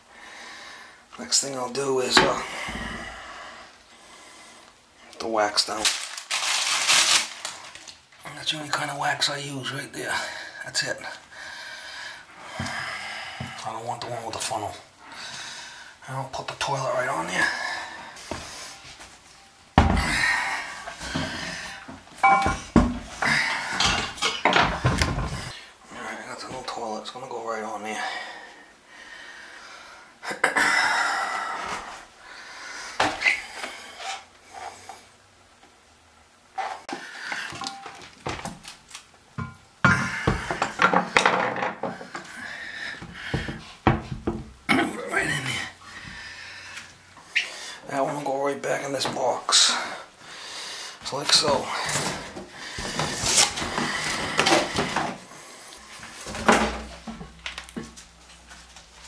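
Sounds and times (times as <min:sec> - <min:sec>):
person breathing heavily: 0:00.0 - 0:01.1, 0:02.3 - 0:04.8, 0:10.1 - 0:13.7, 0:14.9 - 0:16.0, 0:17.2 - 0:19.0, 0:19.8 - 0:25.9, 0:27.9 - 0:35.2, 0:39.9 - 0:41.2, 0:41.8 - 0:43.8, 0:45.3 - 0:47.9, 0:49.7 - 0:51.0, 0:51.6 - 0:56.1.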